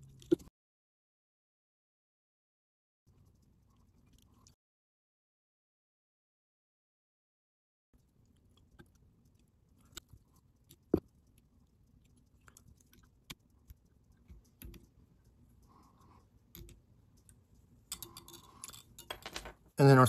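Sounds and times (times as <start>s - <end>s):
small clicks and taps: 8.2s - 19.5s.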